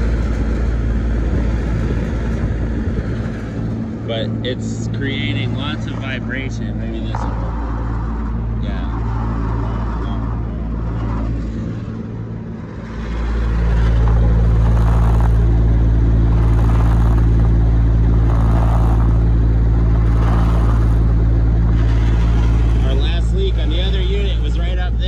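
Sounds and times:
condenser fan humming and rushing: 0.0s - 25.0s
fan motor vibration: 0.0s - 25.0s.

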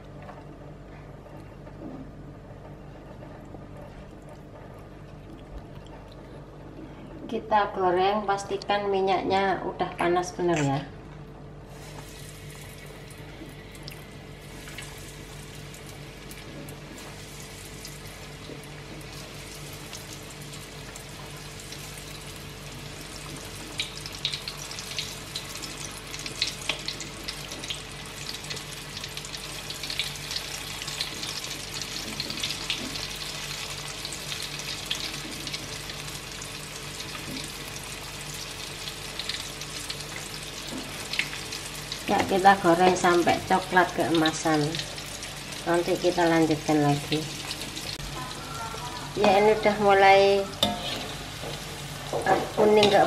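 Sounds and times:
fish deep-frying in hot oil: 11.7s - 53.0s.

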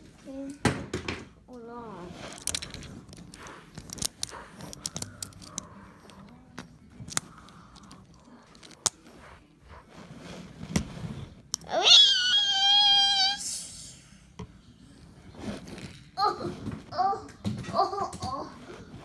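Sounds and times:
toy engines clicking and knocking: 2.3s - 5.7s.

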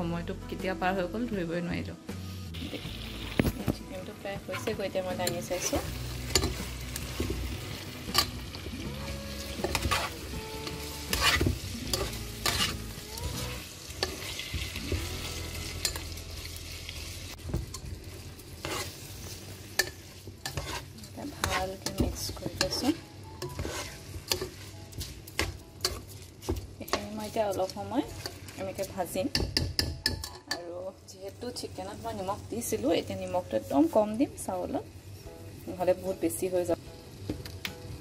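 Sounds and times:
chicken and onions sizzling in oil: 2.2s - 38.0s
rice being stirred and fried: 2.5s - 38.0s
spatula scraping and knocking pot: 9.3s - 15.2s, 18.6s - 19.0s, 19.8s - 30.6s.

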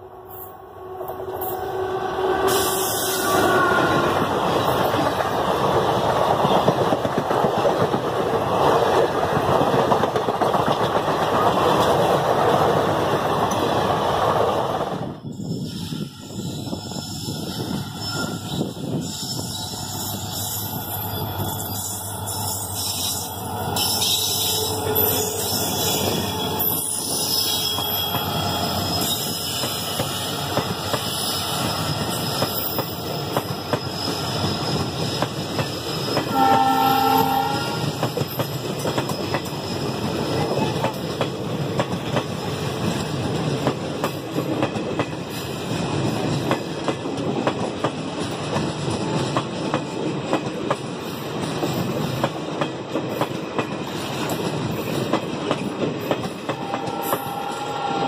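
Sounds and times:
train horn: 0.0s - 4.3s, 36.3s - 38.1s, 56.5s - 58.0s
train wheels clattering: 37.4s - 57.7s.

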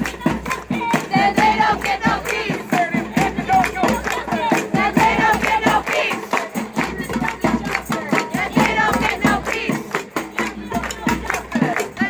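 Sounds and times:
crowd shouting together: 0.0s - 6.6s
snare drums beating: 0.0s - 12.0s.

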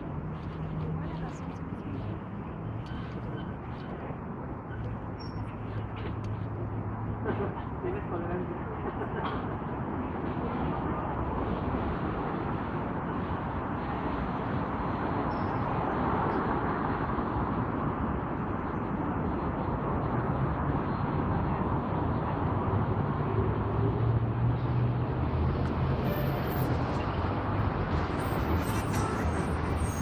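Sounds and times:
city traffic rumble: 0.0s - 30.0s.

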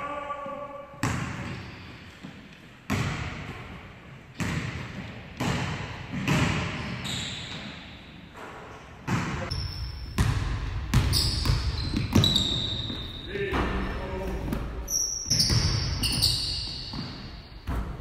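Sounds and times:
basketballs bouncing on wood floor: 1.0s - 7.8s, 9.1s - 18.0s
short high squeaks: 11.2s - 13.1s, 14.9s - 17.0s.

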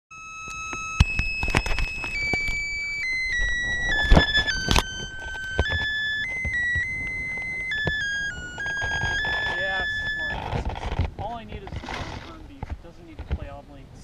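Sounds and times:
electric motor whining: 0.2s - 11.0s.

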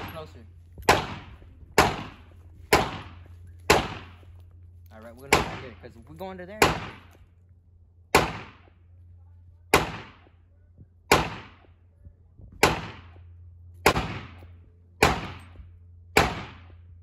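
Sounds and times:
gunshots echoing: 0.0s - 4.3s, 5.2s - 5.8s, 6.6s - 7.2s, 8.1s - 8.8s, 9.7s - 10.4s, 11.1s - 11.7s, 12.6s - 15.6s, 16.2s - 16.9s.

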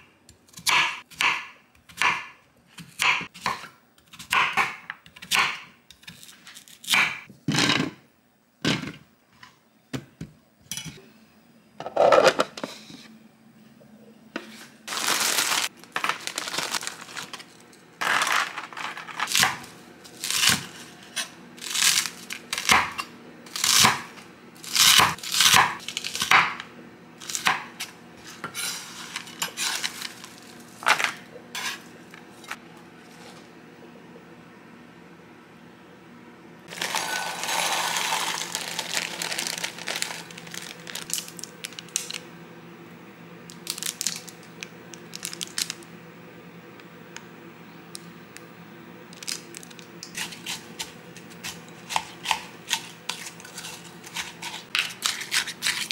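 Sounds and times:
knife crunching through frozen bacon: 21.6s - 22.8s, 36.7s - 42.2s, 49.2s - 55.9s.

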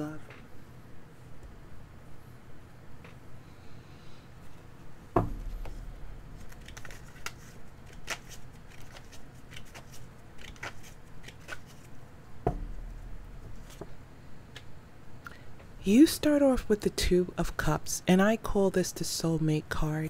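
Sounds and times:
dull knocks: 5.2s - 5.8s, 12.4s - 13.6s
cards clicking and snapping: 6.4s - 11.9s.

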